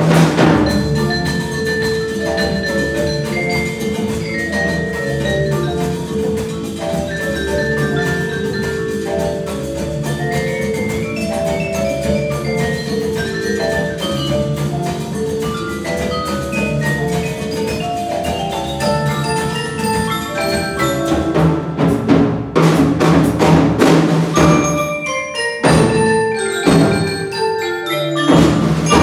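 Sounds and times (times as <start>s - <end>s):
mallet percussion ensemble: 0.0s - 29.0s
heavy struck percussion hits: 28.3s - 29.0s.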